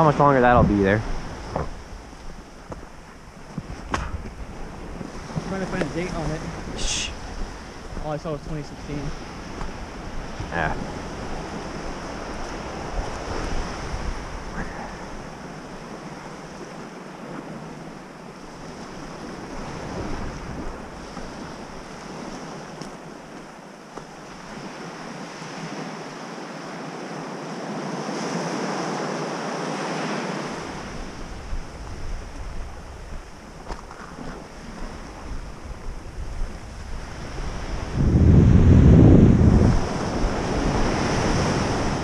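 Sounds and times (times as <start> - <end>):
wind buffeting microphone: 0.0 - 25.8, 30.5 - 42.0
waves washing on gravel beach: 0.0 - 26.4.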